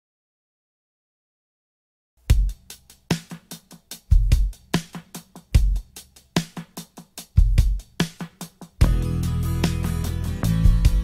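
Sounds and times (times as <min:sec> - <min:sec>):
drum beat: 0:02.2 - 0:11.0
deep kick drum: 0:02.3 - 0:02.6, 0:04.1 - 0:04.6, 0:07.4 - 0:08.0, 0:08.8 - 0:11.0
band playing: 0:08.8 - 0:11.0.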